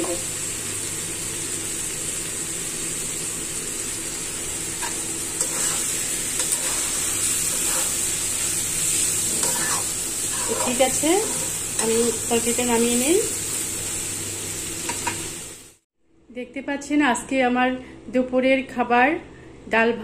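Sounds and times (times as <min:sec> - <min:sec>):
food sizzling in a pan: 0:00.0 - 0:15.9
metal spatula scraping a pan: 0:04.8 - 0:08.3, 0:08.9 - 0:12.1.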